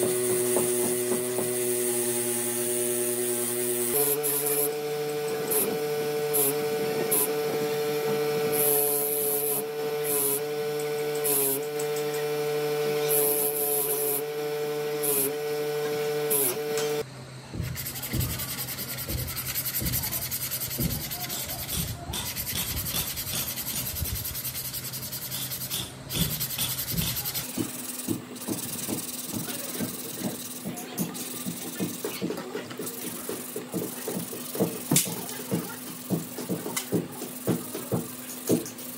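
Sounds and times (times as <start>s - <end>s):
electric motor humming: 0.0s - 38.9s
sandpaper rubbing on metal: 17.7s - 38.9s
wire brushing scratches: 17.8s - 27.6s.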